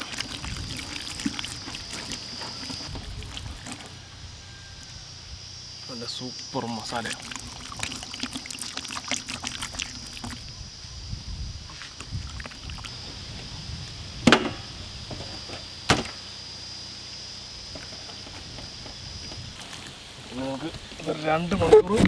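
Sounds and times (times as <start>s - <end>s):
wet squelching of hands: 0.0s - 3.9s, 6.9s - 10.4s.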